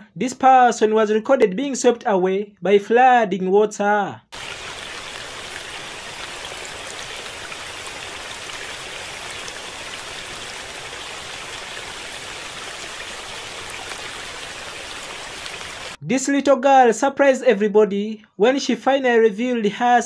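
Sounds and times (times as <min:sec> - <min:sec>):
rushing floodwater: 0:04.4 - 0:16.0.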